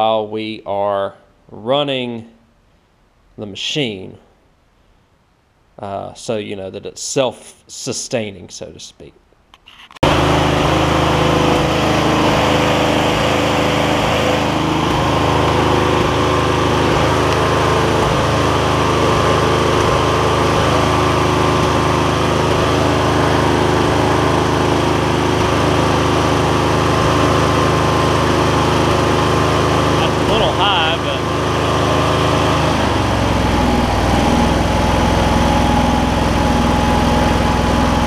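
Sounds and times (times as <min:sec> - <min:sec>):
tractor engine running steadily: 0:10.0 - 0:38.0.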